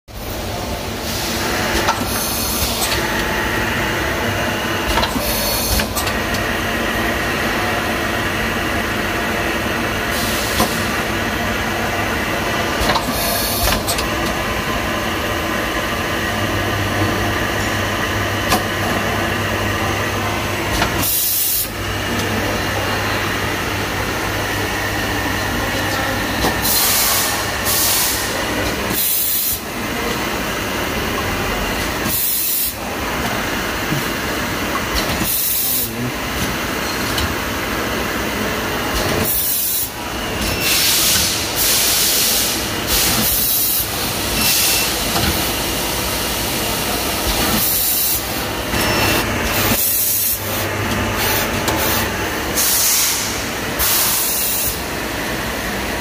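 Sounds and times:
filling machine running: 0.1 - 56.0
short sharp air hisses: 52.6 - 54.3.

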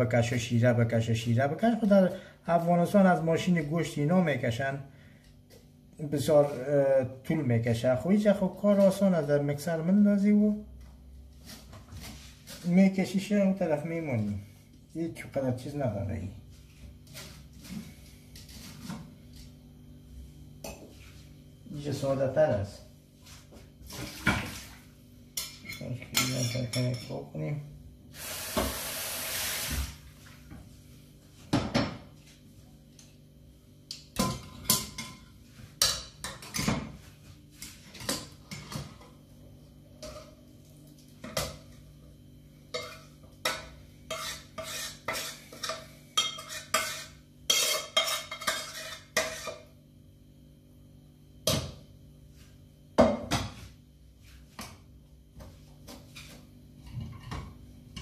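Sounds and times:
metal pots and spoon clinking: 42.8 - 49.6.

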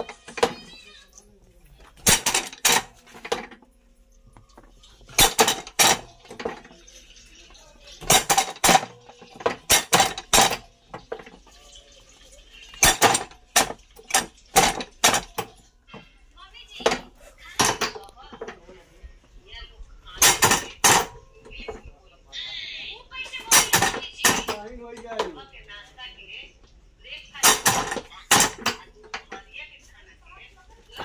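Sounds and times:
metal press clanking: 2.0 - 3.6, 5.0 - 6.8, 8.0 - 11.4, 12.8 - 15.6, 20.2 - 21.8, 23.3 - 25.3, 27.4 - 29.3.

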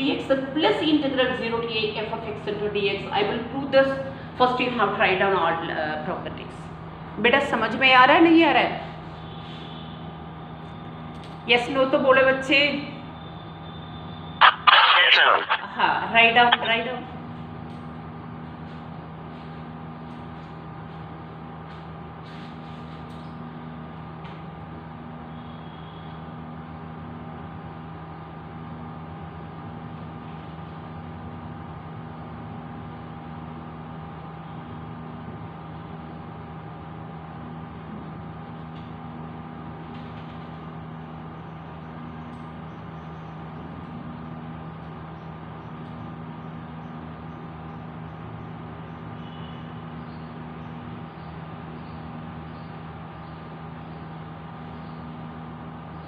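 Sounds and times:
machine hum: 12.9 - 56.0.

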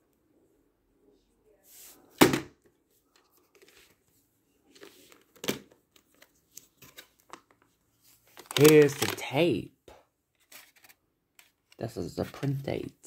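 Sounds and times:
plastic case rustling: 8.2 - 9.3, 10.4 - 11.6.

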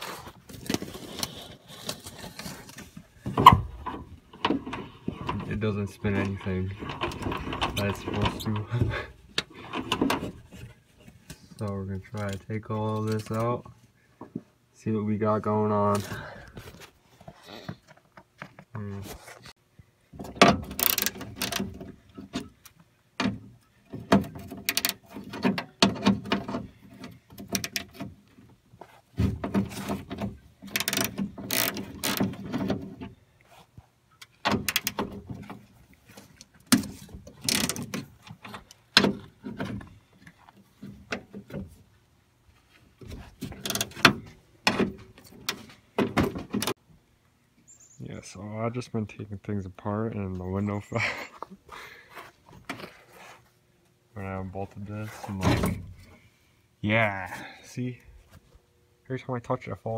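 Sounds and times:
hand ratchet clicking: 20.8 - 21.6, 30.7 - 32.2.

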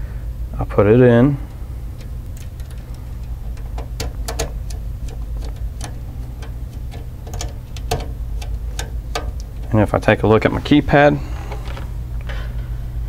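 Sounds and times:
steady low hum: 0.0 - 13.0
screwdriver clicks and ticks: 2.0 - 9.8.

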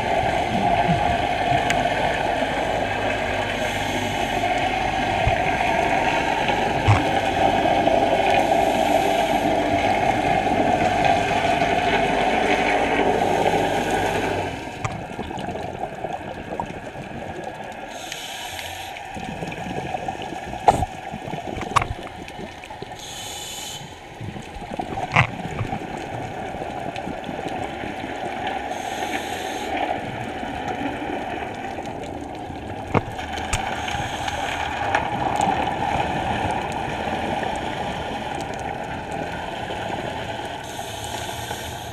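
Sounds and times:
water bubbling and gurgling: 0.0 - 41.9
regulator inhalation hiss: 17.9 - 19.0, 23.0 - 24.0, 28.7 - 29.8, 33.7 - 34.6, 40.6 - 41.9.

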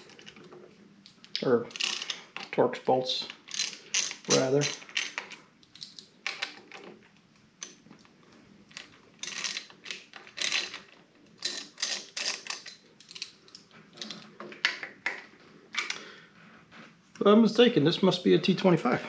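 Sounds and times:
small metallic clicks and rattles: 0.0 - 2.6, 3.2 - 7.0, 8.7 - 15.2.

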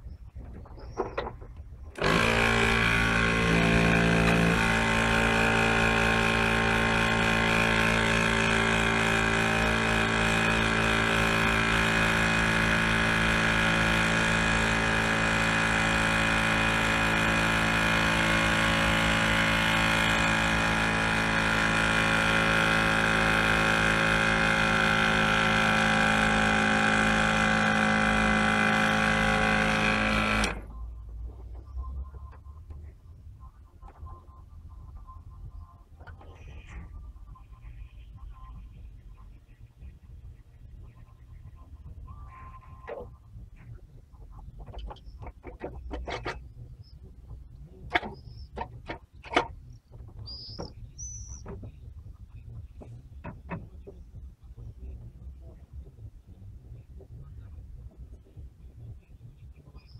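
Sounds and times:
motor humming: 0.4 - 31.8.

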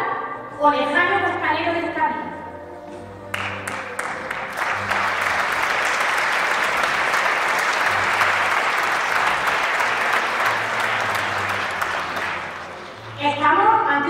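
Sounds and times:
audience applauding: 3.3 - 13.2.

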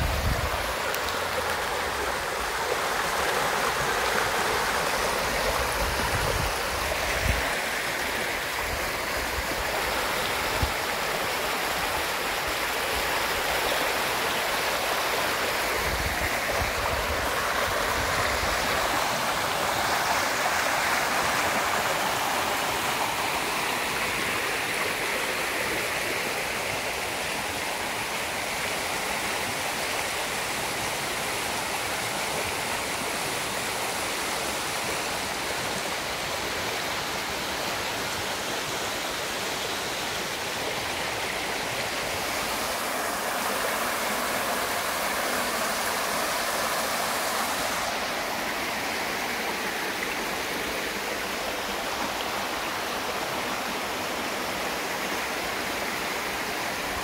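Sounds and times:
stream babbling over stones: 0.0 - 57.0.

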